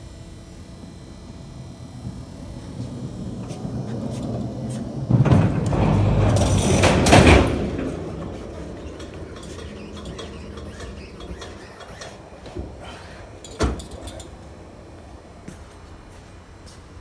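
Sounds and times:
pallet jack rolling: 2.0 - 14.4.

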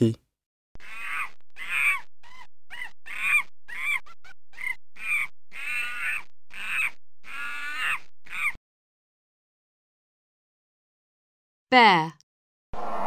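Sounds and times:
monkey calling: 0.8 - 8.6.

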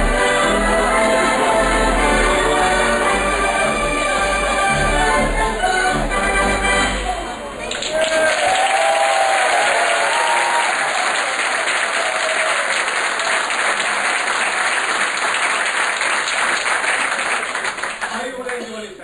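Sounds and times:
audience applauding: 7.5 - 18.9.

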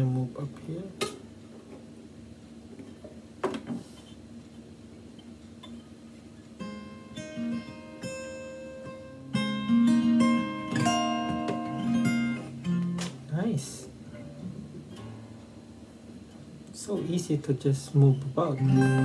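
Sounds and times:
acoustic guitar strums: 6.6 - 13.3, 13.9 - 17.1, 17.9 - 19.0
picked guitar chord notes: 6.6 - 13.3, 18.1 - 19.0.

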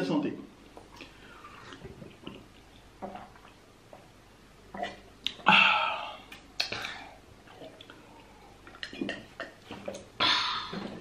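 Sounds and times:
soft gulps: 0.8 - 4.1, 4.7 - 11.0
person exhaling ahh: 10.2 - 11.0.

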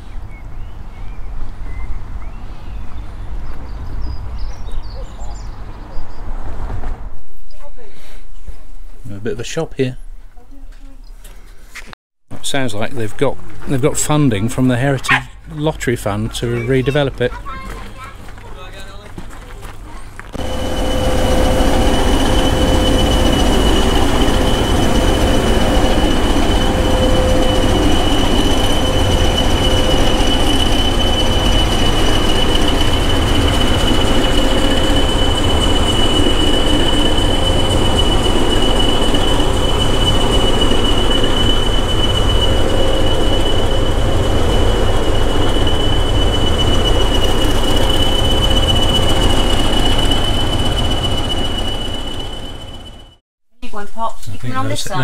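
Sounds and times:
diesel locomotive idling: 12.4 - 53.2
turbocharger whistle: 20.4 - 53.2.

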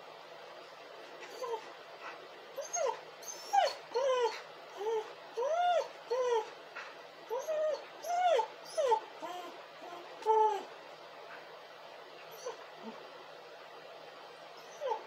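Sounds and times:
dog whining: 1.3 - 1.8, 2.6 - 6.6, 7.3 - 10.8, 12.3 - 13.1, 14.6 - 15.0.

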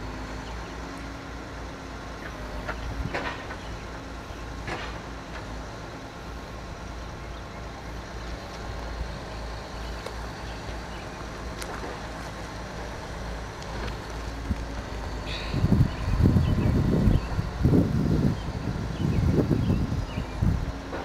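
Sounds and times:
distant diesel locomotive rumbling: 0.0 - 21.0.

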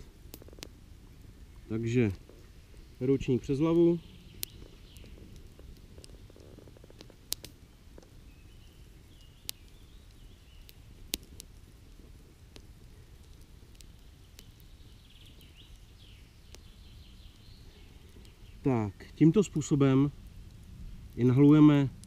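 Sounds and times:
bird chirps: 2.8 - 5.3, 8.2 - 10.8, 14.2 - 19.1
sharp clicks: 7.0 - 8.1, 10.7 - 11.5.

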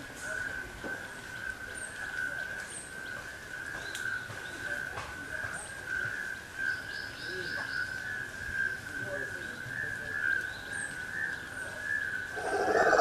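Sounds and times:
high-pitched drone: 12.4 - 13.0.

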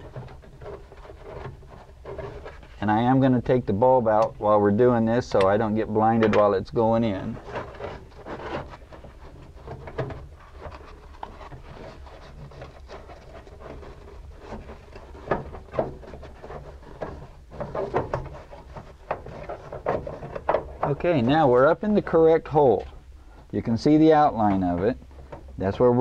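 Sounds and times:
small knocks and scrapes: 0.0 - 26.0.

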